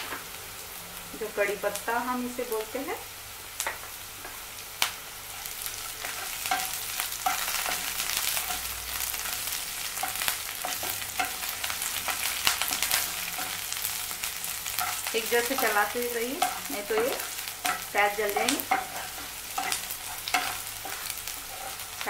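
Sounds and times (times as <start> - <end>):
onions sizzling in hot oil: 0.0 - 22.0
wooden spatula scraping pan: 14.7 - 22.0.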